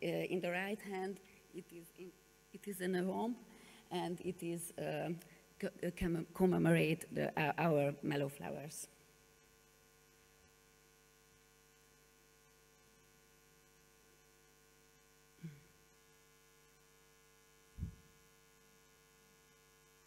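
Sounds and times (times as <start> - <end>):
electrical mains hum: 0.0 - 20.0
low thumps: 17.8 - 18.1.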